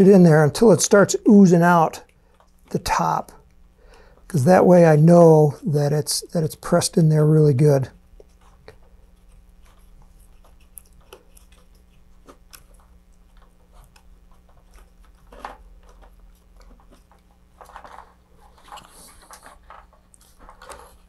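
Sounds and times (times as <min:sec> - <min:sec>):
low steady hum: 0:00.0 - 0:21.0
thin plastic crackling and clicking: 0:08.2 - 0:21.0.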